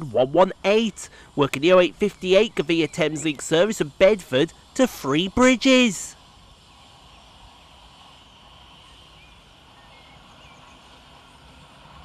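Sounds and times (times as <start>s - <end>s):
birds chirping: 0.7s - 4.2s.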